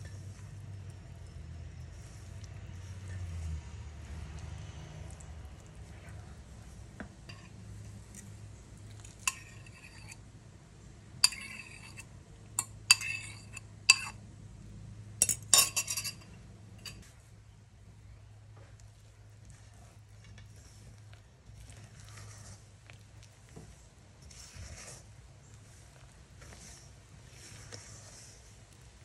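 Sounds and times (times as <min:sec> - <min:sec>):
metal pot clinking against bowl: 0:09.3 - 0:10.2, 0:11.3 - 0:12.0, 0:12.6 - 0:14.2, 0:15.2 - 0:17.0.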